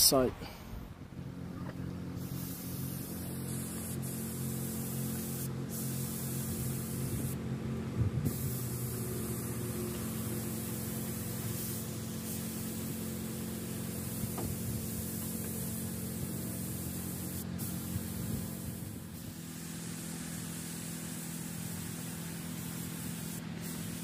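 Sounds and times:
steady low hum: 0:00.0 - 0:24.0
paint spray gun hissing: 0:02.1 - 0:07.5, 0:08.2 - 0:24.0
brief thump: 0:14.3 - 0:14.6.

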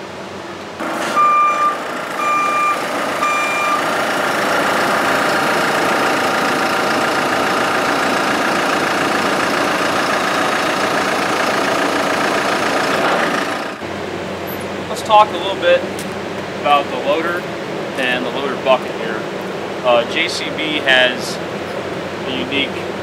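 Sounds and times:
diesel engine running: 0:00.0 - 0:23.0
electronic warning beeps: 0:01.1 - 0:03.9.

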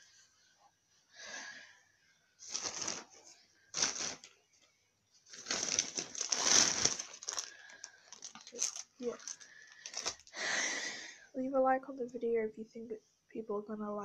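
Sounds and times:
clothes rustling: 0:02.4 - 0:04.3, 0:05.2 - 0:10.3.

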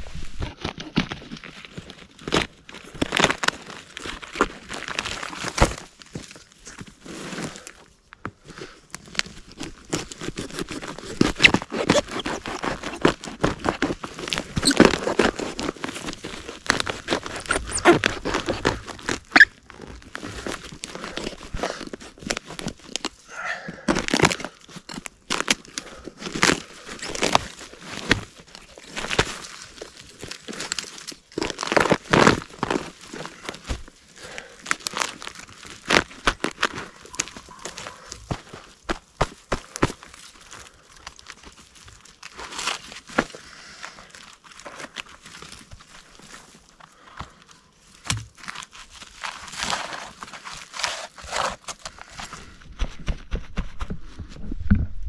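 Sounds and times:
rotten wood crunching: 0:00.0 - 0:55.0
bark tearing: 0:00.4 - 0:06.4, 0:09.0 - 0:23.2, 0:23.9 - 0:47.1, 0:47.8 - 0:53.1
knife scraping wood: 0:09.8 - 0:23.2, 0:49.4 - 0:52.1.

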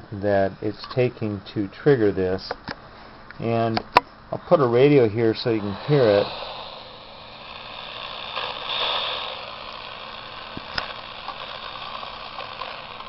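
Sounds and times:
radio static hiss: 0:03.3 - 0:13.0
sharp click: 0:10.5 - 0:11.0.

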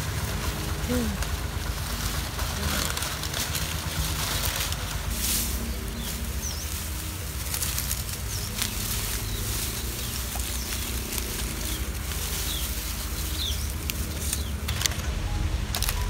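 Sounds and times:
grass rustling: 0:00.0 - 0:16.0.

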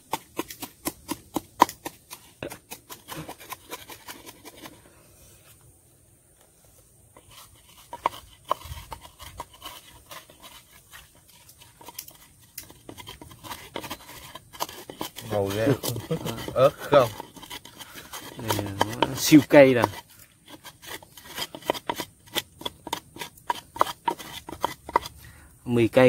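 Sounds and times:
pestle pounding in a mortar: 0:00.0 - 0:04.7, 0:12.7 - 0:25.1.

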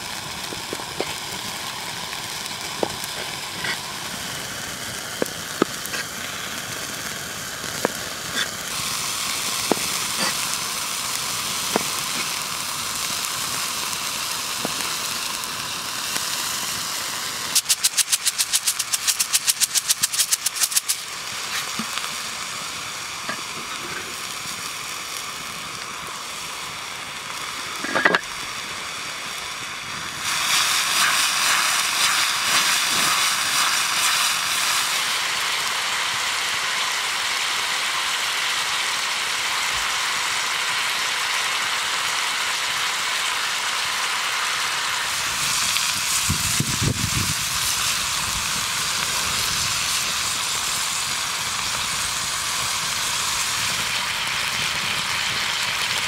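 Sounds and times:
meat sizzling: 0:00.0 - 0:56.0
salt sprinkling clicks: 0:17.6 - 0:22.0.

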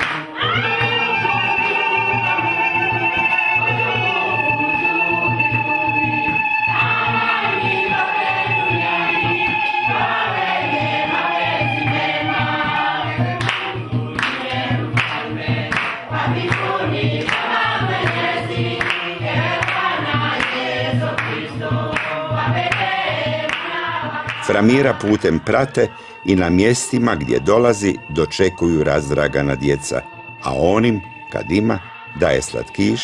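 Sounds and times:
choir singing gospel song: 0:00.0 - 0:33.0
steady low beat: 0:03.7 - 0:28.2.

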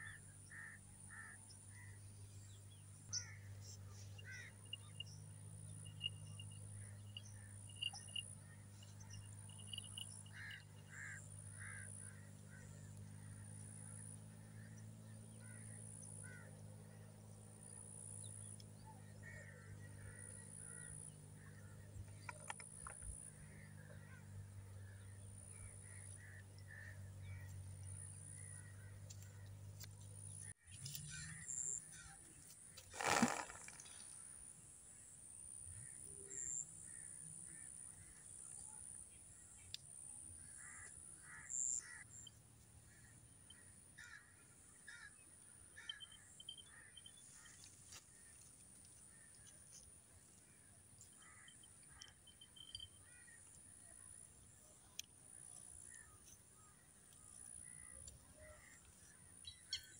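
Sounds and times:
crows cawing: 0:00.0 - 0:02.0, 0:04.2 - 0:04.7, 0:09.5 - 0:13.4, 0:15.4 - 0:16.6, 0:44.0 - 0:47.6
steady low hum: 0:00.0 - 0:32.8.

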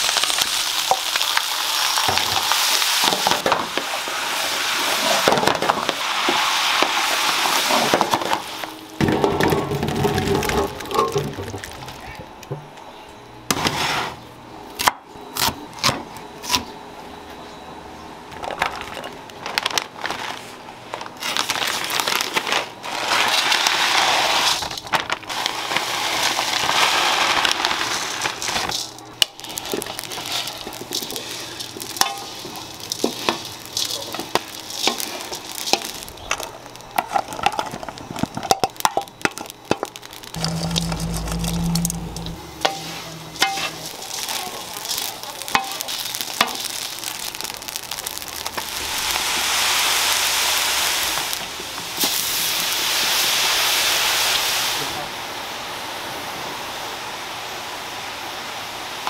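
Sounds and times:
dried fish pouring into wok: 0:21.2 - 0:36.2, 0:39.0 - 0:51.3.

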